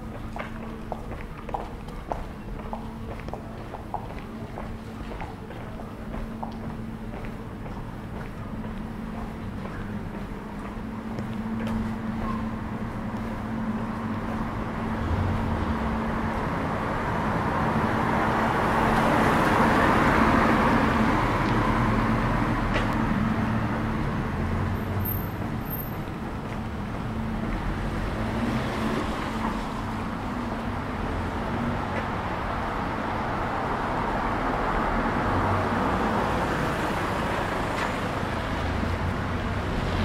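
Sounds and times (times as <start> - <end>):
street traffic hum: 0.0 - 40.0
car passing: 13.7 - 40.0.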